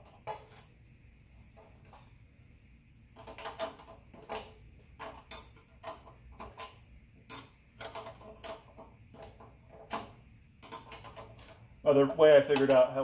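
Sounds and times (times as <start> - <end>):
metal tool clicking on bolts: 3.2 - 11.6.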